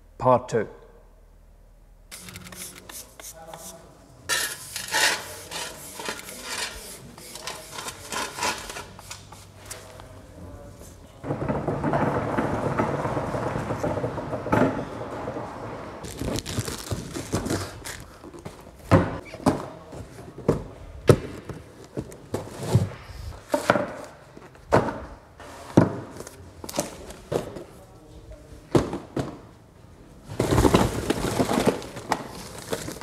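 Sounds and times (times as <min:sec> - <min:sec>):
dense rattling and rustling: 0:30.2 - 0:33.0.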